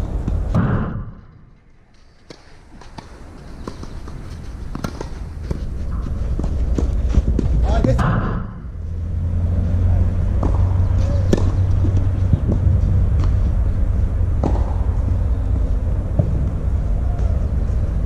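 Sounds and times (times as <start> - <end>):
steady low hum: 0.0 - 18.0
tennis ball knocks: 10.3 - 12.6.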